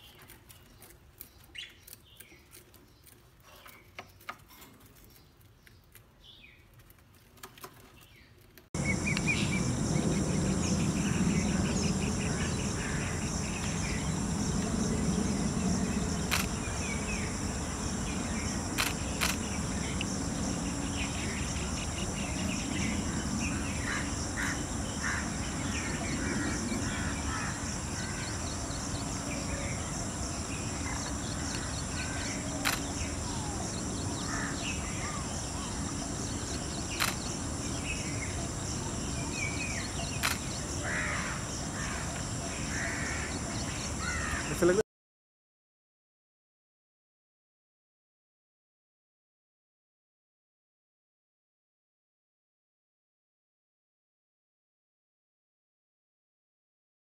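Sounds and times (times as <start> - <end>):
bird chirps and calls: 8.8 - 17.4
insect drone: 8.8 - 44.8
sharp clicks: 16.3 - 16.6, 18.8 - 19.5, 32.6 - 33.0, 37.0 - 37.3, 40.2 - 40.5.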